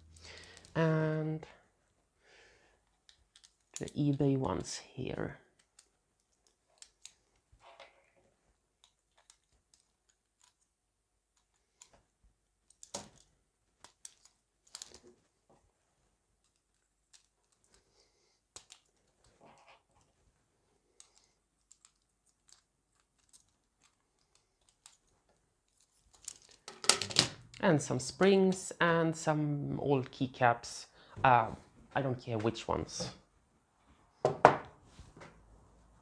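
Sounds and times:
plastic keyboard keys clicking: 12.6s - 15.0s, 18.6s - 19.2s, 21.0s - 25.1s.

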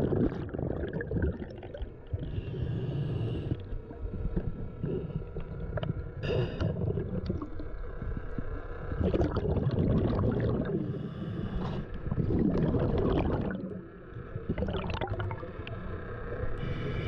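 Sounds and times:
underwater bubbling and churning: 0.0s - 17.0s
scuba regulator breathing hiss: 2.2s - 3.6s, 6.2s - 6.8s, 10.8s - 11.9s, 16.6s - 17.0s.

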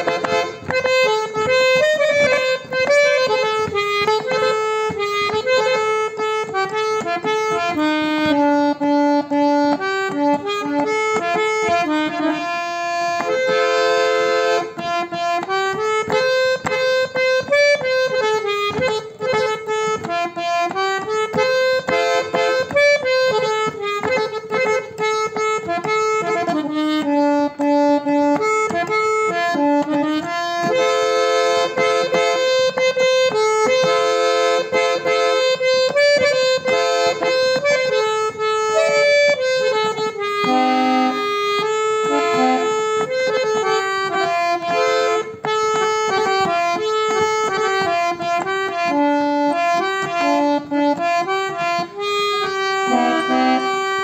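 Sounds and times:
harmonium playing melody: 0.0s - 54.0s.

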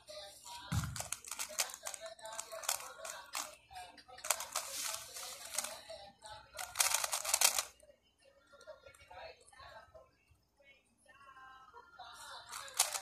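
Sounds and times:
puzzle cube clicking: 0.9s - 3.6s, 4.2s - 5.8s, 6.6s - 7.7s, 12.5s - 13.0s.

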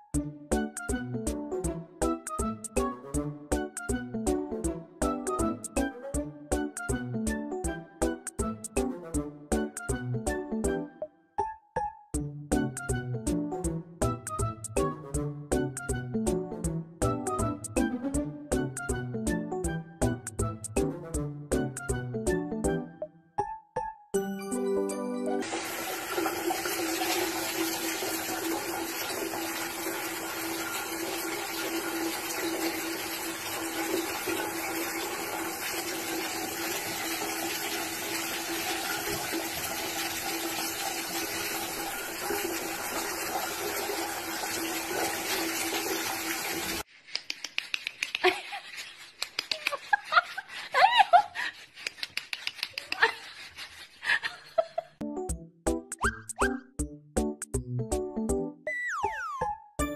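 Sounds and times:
shower water running: 25.4s - 46.9s.

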